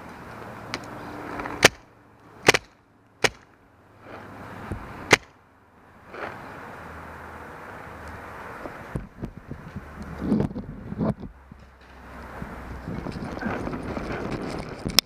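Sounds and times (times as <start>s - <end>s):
paintball marker shots: 1.6s - 3.5s, 5.1s - 5.3s.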